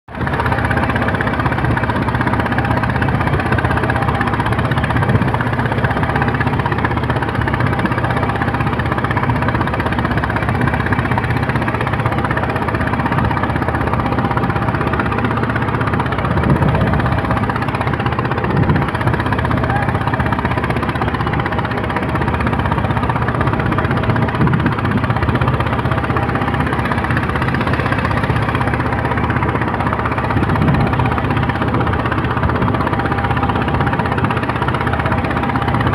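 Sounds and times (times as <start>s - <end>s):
boat engine running: 0.1s - 35.9s
water splashing along hull: 0.1s - 35.9s.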